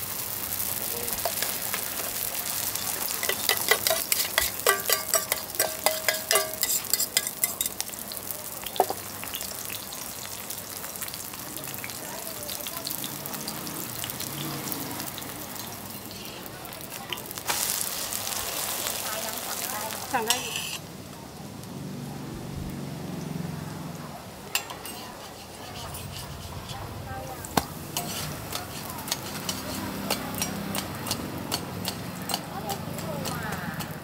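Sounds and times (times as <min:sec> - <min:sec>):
roti sizzling in oil: 0:00.0 - 0:21.7, 0:24.4 - 0:34.0
fork clinking against metal: 0:03.2 - 0:07.8.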